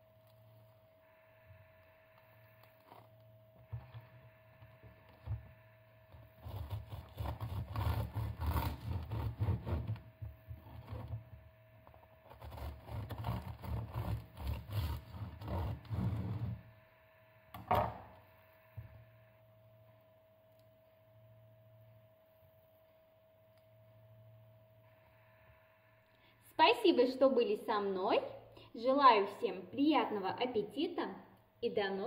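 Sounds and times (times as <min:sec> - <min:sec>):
knife sawing through bread: 0:06.4 - 0:10.0, 0:12.2 - 0:16.6
knock on wooden board: 0:17.6 - 0:18.0.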